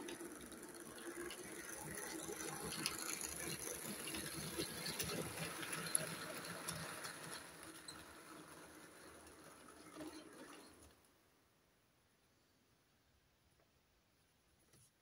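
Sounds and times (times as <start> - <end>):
model train motor whirring: 0.0 - 11.2
wheels clicking over track: 0.0 - 11.3.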